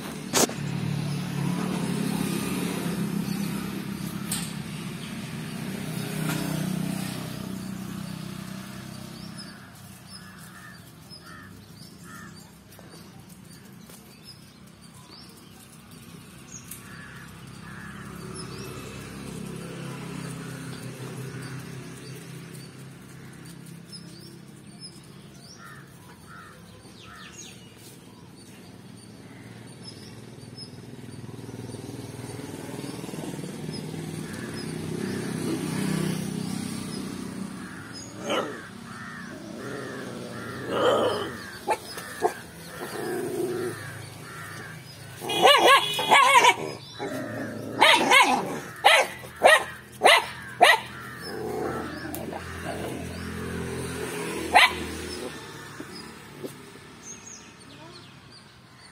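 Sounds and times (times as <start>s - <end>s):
passing vehicle rumble: 0.0s - 58.9s
young dogs barking and yapping: 37.5s - 56.8s.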